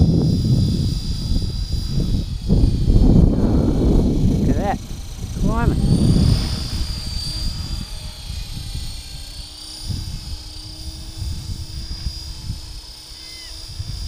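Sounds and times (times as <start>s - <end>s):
low steady hum: 0.0s - 14.0s
rc helicopter motor whine: 0.0s - 14.0s
wind buffeting microphone: 0.0s - 14.0s.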